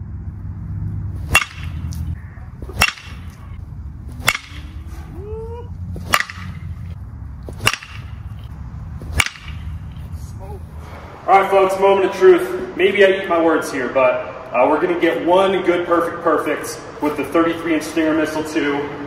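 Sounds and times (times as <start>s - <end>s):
steady low hum: 0.0s - 19.0s
metal bat striking ball: 1.2s - 3.6s, 4.2s - 5.1s, 6.0s - 10.1s.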